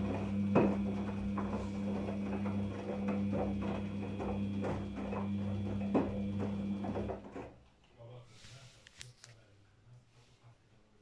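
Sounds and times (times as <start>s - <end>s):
washing machine motor hum: 0.0s - 7.6s.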